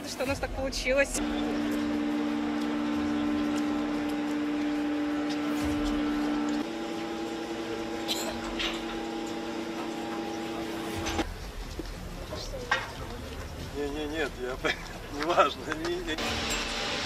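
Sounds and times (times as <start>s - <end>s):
machine humming: 0.0s - 11.3s, 16.2s - 17.0s.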